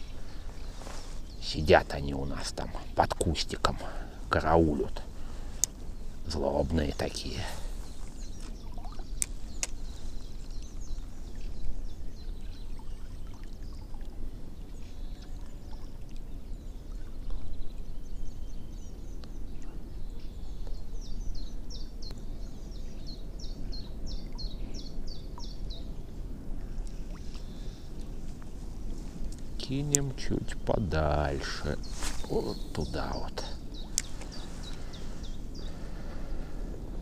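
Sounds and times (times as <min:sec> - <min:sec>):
water and wind noise: 0:00.0 - 0:37.0
bird chirping: 0:05.6 - 0:14.0, 0:29.1 - 0:36.2.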